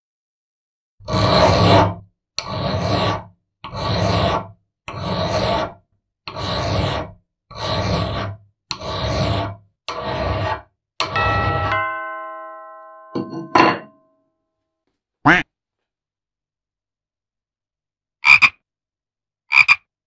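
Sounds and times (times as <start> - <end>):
hand file rasping on steel: 1.0 - 11.7.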